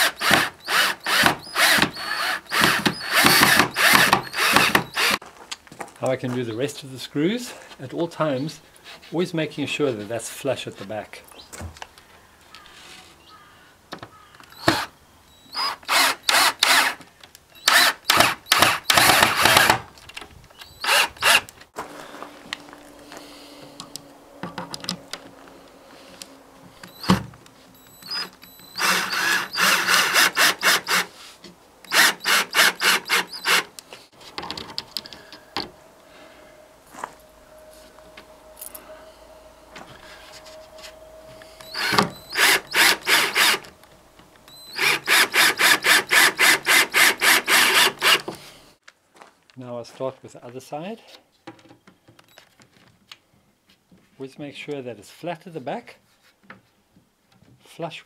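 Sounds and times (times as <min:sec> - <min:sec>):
cordless drill driving screws: 0:00.0 - 0:05.2, 0:14.6 - 0:14.9, 0:15.5 - 0:17.0, 0:17.6 - 0:19.8, 0:20.6 - 0:21.6, 0:26.8 - 0:27.2, 0:27.8 - 0:31.1, 0:31.9 - 0:33.8, 0:41.6 - 0:43.7, 0:44.5 - 0:48.4.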